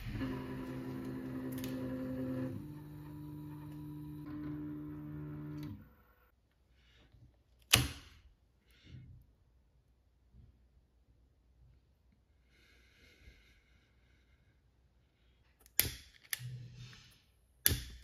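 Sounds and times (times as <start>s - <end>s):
stepper motors whining: 0.0s - 6.3s.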